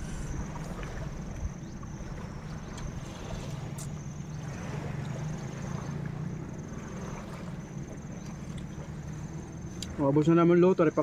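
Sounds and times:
low rumble: 0.0s - 3.1s
pulsing insect trill: 0.0s - 11.0s.

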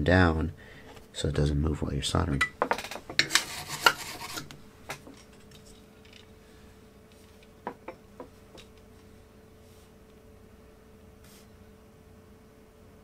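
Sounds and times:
faint steady hum: 0.0s - 13.0s
hands rubbing on workbench: 8.2s - 10.1s, 11.2s - 11.5s.

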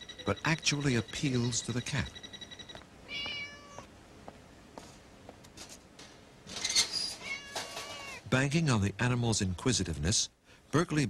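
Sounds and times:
cat meowing: 3.0s - 3.9s, 7.1s - 8.2s.

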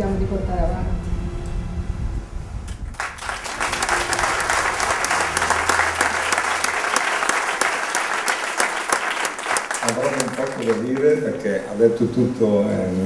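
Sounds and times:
close sharp hand claps: 2.9s - 11.1s
audience applause: 2.9s - 11.5s.

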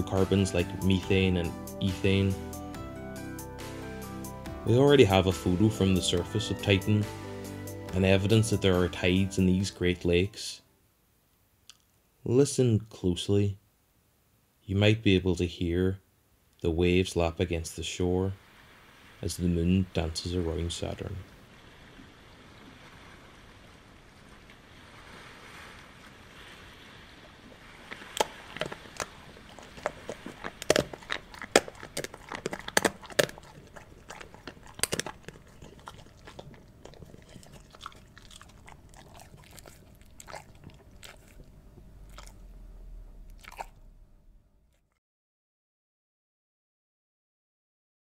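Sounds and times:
waves lapping: 18.4s - 41.4s
crunching and biting: 27.8s - 42.6s, 43.2s - 43.9s.

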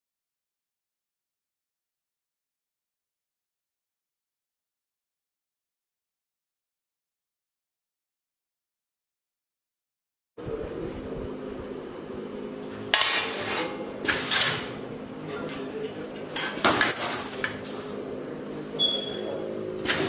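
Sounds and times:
machine humming: 10.4s - 20.0s
short high beep: 18.8s - 19.3s.

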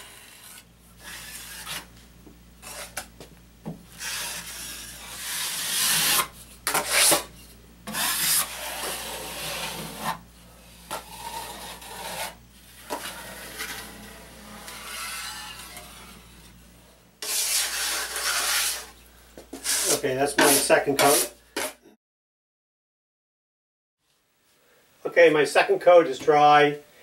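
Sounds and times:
drywall knife scraping: 0.0s - 1.9s, 2.6s - 3.1s, 3.9s - 16.6s, 17.2s - 21.8s.

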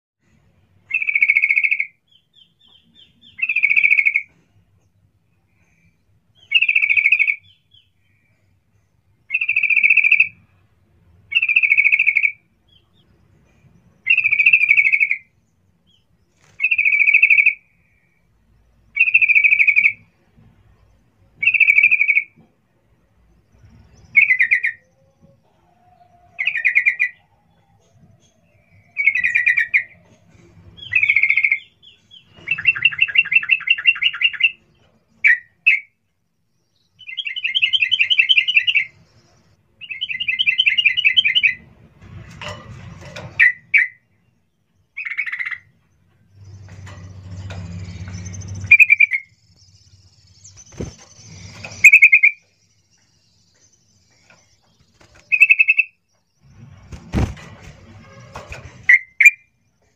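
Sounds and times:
bird rattling trills: 46.3s - 59.4s.

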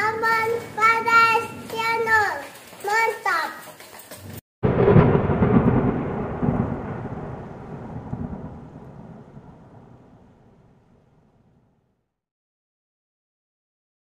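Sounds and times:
thunder-like boom with rumble: 4.6s - 11.9s.

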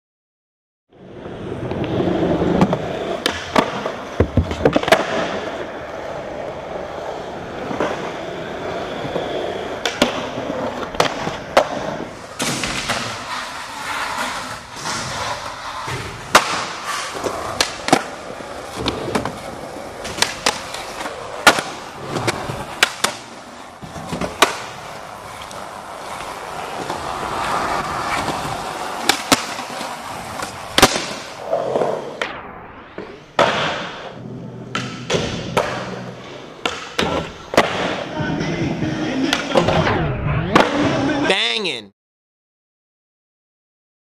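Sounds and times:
skateboard wheels rolling: 0.9s - 41.3s
skateboard grinding on ledges: 1.0s - 32.3s
skateboard clacks: 1.6s - 5.8s, 8.8s - 32.3s.

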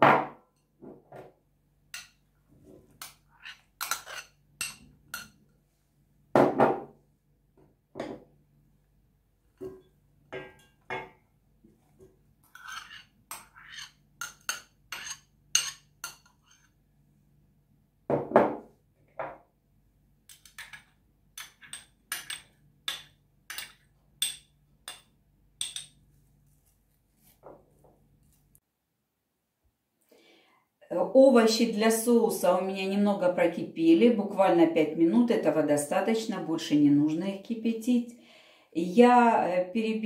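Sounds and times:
spoon clinking against glass bowl: 21.4s - 26.0s.

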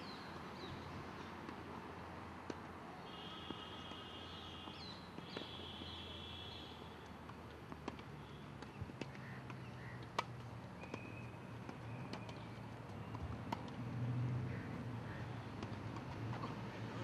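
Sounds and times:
tennis balls struck by rackets: 4.6s - 6.0s, 7.0s - 13.9s, 14.7s - 16.7s.

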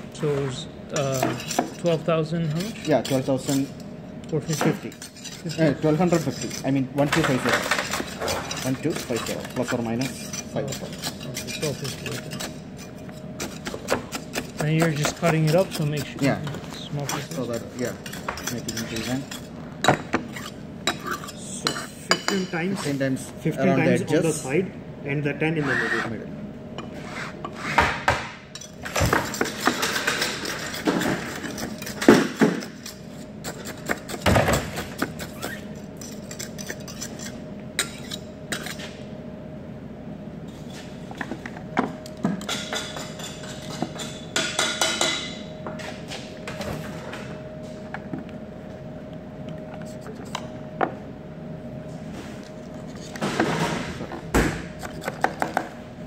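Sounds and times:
steady hum: 0.0s - 56.0s.

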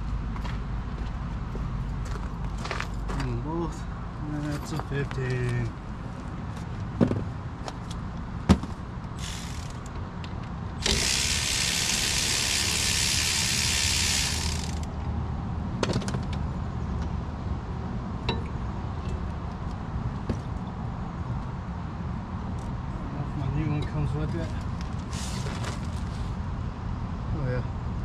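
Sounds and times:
steady air hiss: 9.2s - 9.8s.

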